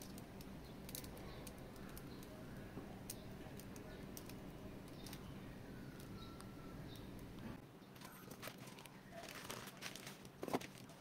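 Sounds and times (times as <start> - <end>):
small plastic parts clicking: 0.0 - 2.4, 3.0 - 5.3
low steady hum: 0.0 - 11.0.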